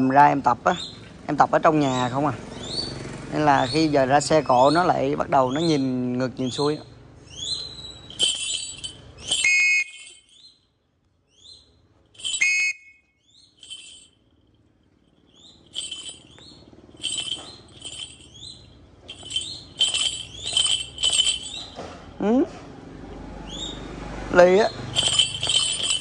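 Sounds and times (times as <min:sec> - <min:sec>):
bird calling shrill notes: 0:06.4 - 0:10.6, 0:11.3 - 0:14.2, 0:15.2 - 0:21.8, 0:24.6 - 0:26.0.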